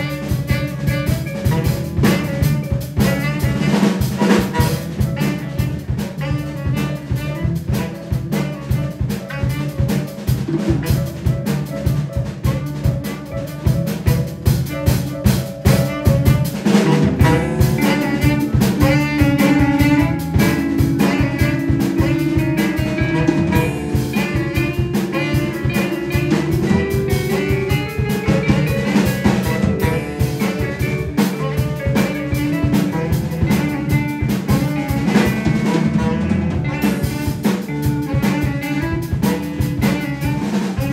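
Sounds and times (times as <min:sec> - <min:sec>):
drums busy rhythm: 0:00.0 - 0:40.9
jazz band playing: 0:00.0 - 0:40.9.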